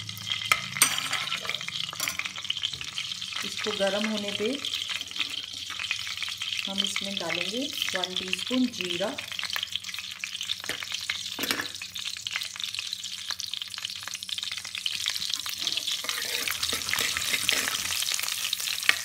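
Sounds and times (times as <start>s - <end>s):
seeds sizzling in hot oil: 0.0s - 19.0s
steel spoon stirring: 0.5s - 2.3s, 15.4s - 19.0s.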